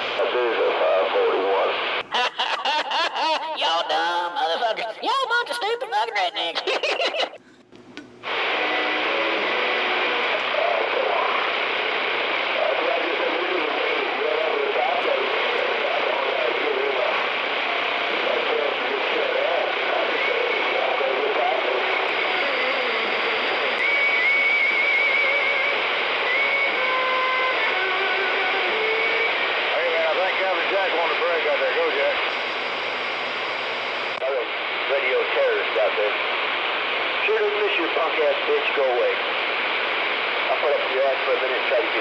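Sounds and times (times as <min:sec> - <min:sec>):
radio static hiss: 0:00.0 - 0:07.4, 0:08.2 - 0:42.0
faint wavering whistle: 0:23.8 - 0:25.7, 0:26.3 - 0:27.4
steady whistle tones: 0:23.8 - 0:27.4.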